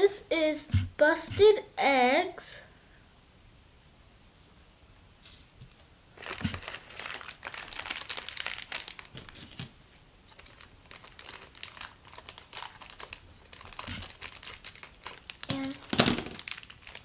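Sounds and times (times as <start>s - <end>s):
plastic bag crinkling and tearing: 6.2s - 9.7s, 10.3s - 17.0s.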